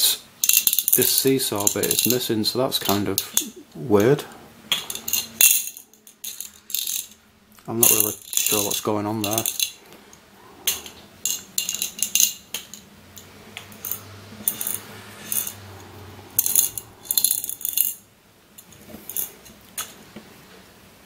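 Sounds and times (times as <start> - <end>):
ball bearings rattling in plastic cube: 0.4 - 2.2, 7.8 - 9.8.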